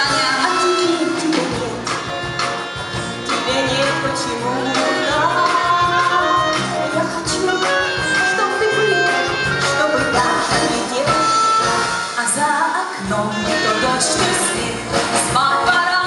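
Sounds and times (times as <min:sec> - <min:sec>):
accordion: 0:00.0 - 0:12.2
drum kit beat: 0:00.0 - 0:16.0
live band playing pop: 0:00.0 - 0:16.0.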